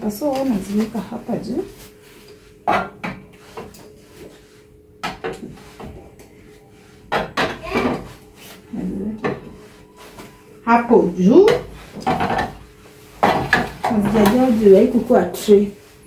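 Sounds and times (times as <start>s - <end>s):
steady low hum: 0.0s - 16.0s
items knocking and clinking: 7.1s - 8.2s, 11.4s - 12.6s, 13.2s - 14.6s.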